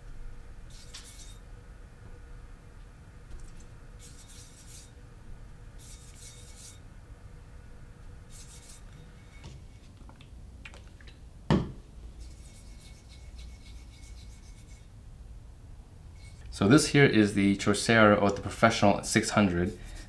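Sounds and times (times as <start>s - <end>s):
knife scraping on whetstone: 0.7s - 1.4s, 4.0s - 5.0s, 5.8s - 6.8s, 8.3s - 10.0s, 12.2s - 14.9s, 16.2s - 16.5s.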